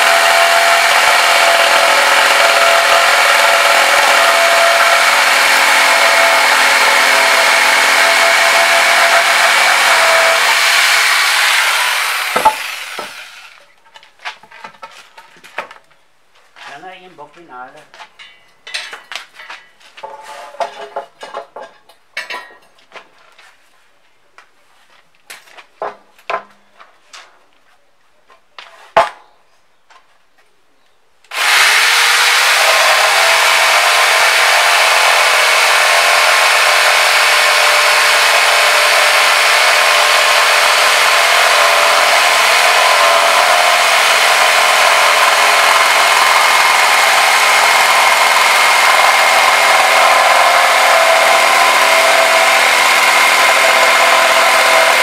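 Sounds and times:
jigsaw cutting wood: 0.0 - 13.6, 31.3 - 55.0.

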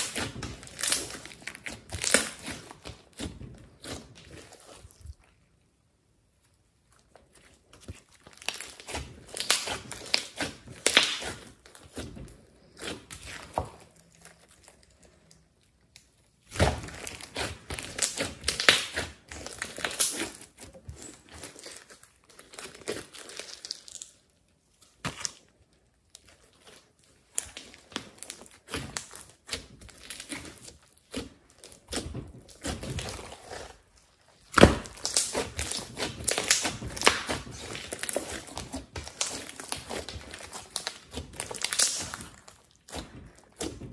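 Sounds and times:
slime squelching: 0.0 - 43.9
slime crackling pops: 34.5 - 43.9.

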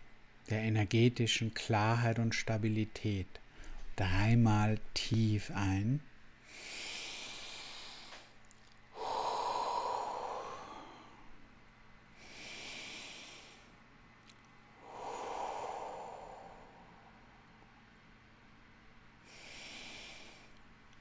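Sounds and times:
man breathing deeply: 6.4 - 11.5, 12.1 - 13.8, 14.8 - 17.9, 19.2 - 20.6.

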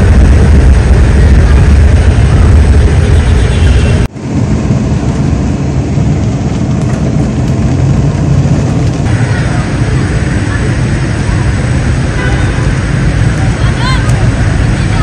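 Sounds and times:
car running from inside cabin: 0.0 - 15.0
dense low rumbling: 0.0 - 15.0
rain on windshield: 5.6 - 15.0.

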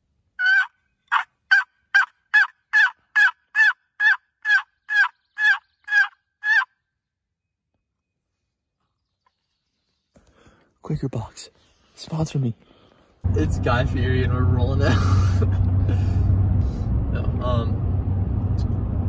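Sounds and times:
turkey call yelps: 0.4 - 6.8.

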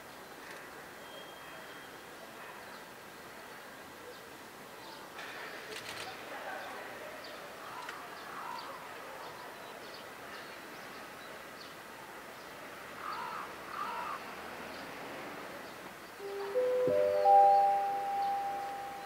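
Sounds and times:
outdoor background noise: 0.0 - 19.0
crows cawing: 13.0 - 14.3
ringing chime-like tones: 16.2 - 19.0.

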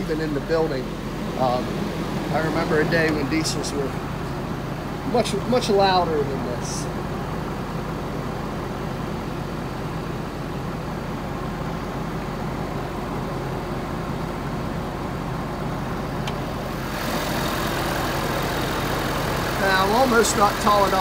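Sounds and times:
diesel engine idling: 0.0 - 21.0.

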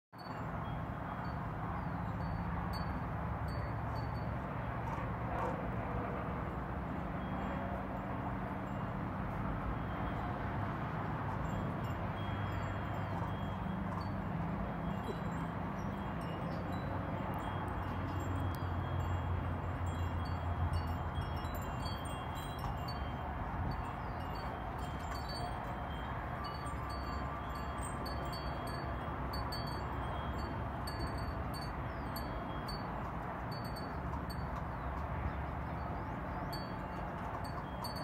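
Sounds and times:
high tinkling chime tones: 14.8 - 32.9.

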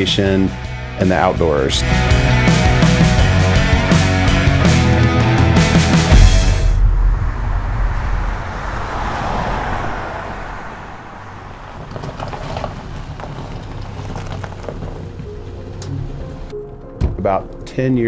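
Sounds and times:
deep rumble: 4.8 - 16.4
vehicle passing: 6.0 - 16.5
faint traffic: 7.1 - 16.5.

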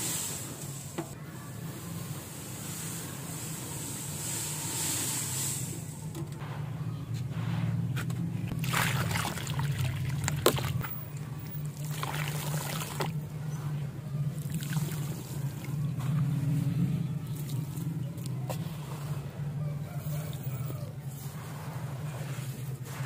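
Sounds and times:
sand hissing and trickling: 0.0 - 1.0, 1.6 - 5.9.

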